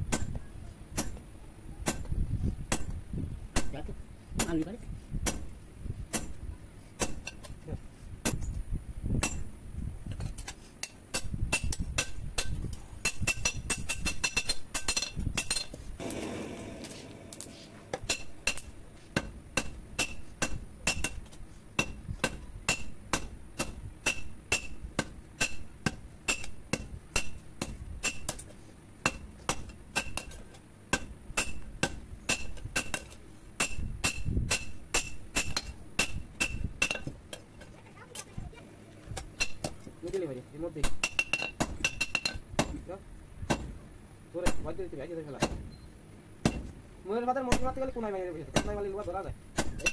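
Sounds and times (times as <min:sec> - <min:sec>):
hammer striking steel on anvil: 0:11.1 - 0:21.2, 0:21.8 - 0:28.4, 0:29.0 - 0:37.1.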